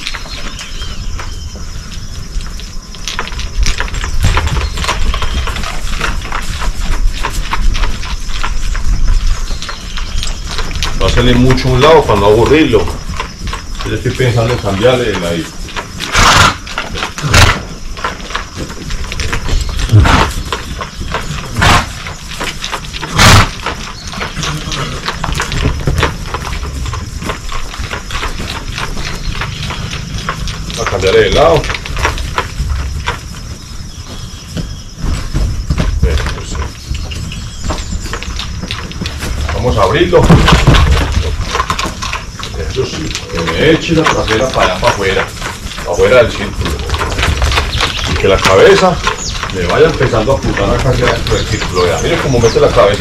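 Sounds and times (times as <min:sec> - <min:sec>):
hooves and tack knocking: 0:00.0 - 0:53.0.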